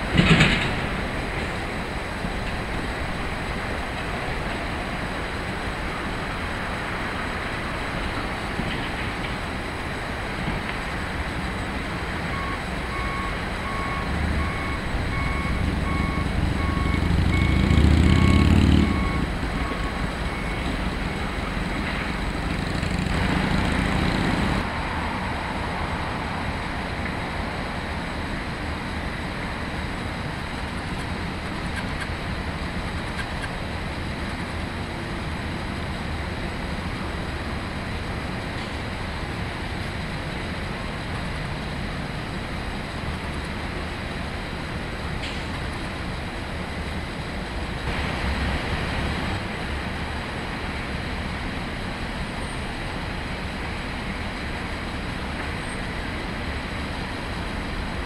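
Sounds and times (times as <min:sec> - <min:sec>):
loader engine working: 0:00.0 - 0:24.7
reversing alarm beeping: 0:12.3 - 0:21.3.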